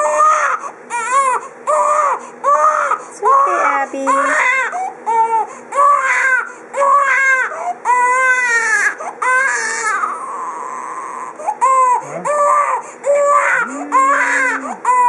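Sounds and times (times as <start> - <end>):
baby crying: 0.0 - 15.0.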